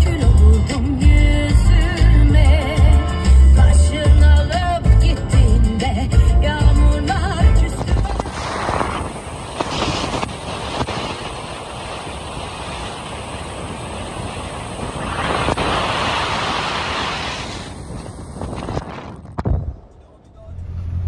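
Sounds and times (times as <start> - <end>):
wind and road noise inside car: 7.0 - 21.0.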